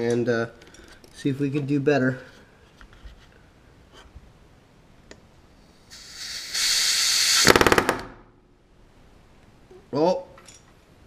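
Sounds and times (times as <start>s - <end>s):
air hiss: 5.7s - 7.6s.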